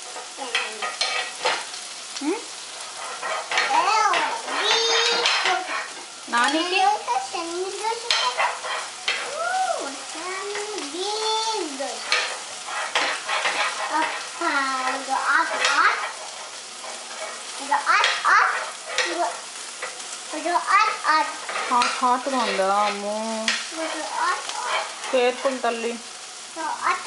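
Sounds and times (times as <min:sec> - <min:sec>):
metal utensil scraping in pan: 0:00.0 - 0:26.1
toddler babbling: 0:03.7 - 0:05.7, 0:09.3 - 0:12.0, 0:23.7 - 0:24.6.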